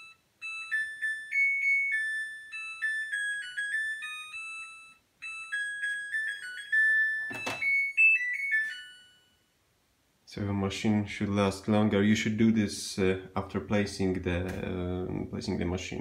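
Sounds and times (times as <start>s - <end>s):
washing machine beeping melody: 0.0s - 9.5s.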